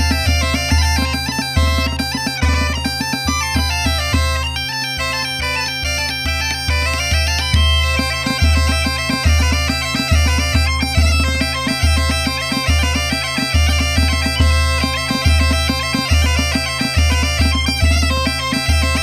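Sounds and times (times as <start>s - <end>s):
drum beat: 0.0s - 4.4s
bagpipes playing fast melody: 0.0s - 19.0s.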